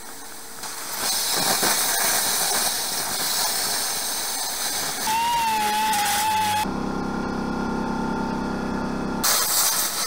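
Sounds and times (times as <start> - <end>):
plasma cutter hissing: 9.2 - 10.0.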